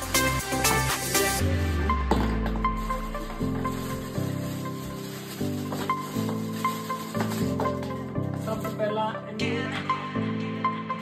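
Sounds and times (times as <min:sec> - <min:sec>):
sustained chords: 0:00.4 - 0:04.3.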